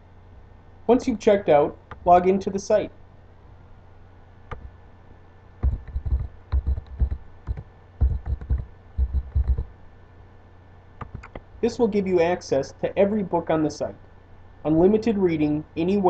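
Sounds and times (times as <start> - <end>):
low steady hum: 0.0 - 16.0
typing on computer keyboard: 5.6 - 9.7, 11.0 - 11.4.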